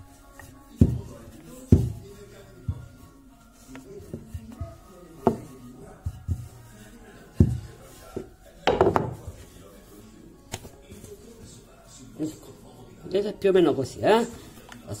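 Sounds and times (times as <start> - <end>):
faint background music: 0.0 - 15.0
rolling pin knocking on board: 0.8 - 2.0, 2.7 - 3.0, 4.1 - 6.6, 7.4 - 9.4.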